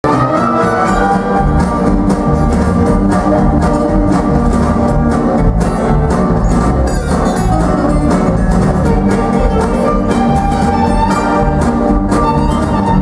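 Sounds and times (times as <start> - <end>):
bass guitar: 0.0 - 13.0
electric and acoustic guitars: 0.0 - 13.0
violin: 0.0 - 13.0
drums with steady beat: 0.1 - 13.0.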